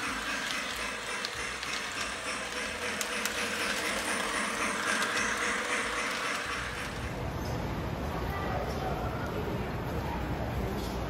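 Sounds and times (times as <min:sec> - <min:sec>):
model train running: 0:00.0 - 0:07.4
faint clicks: 0:00.4 - 0:07.0.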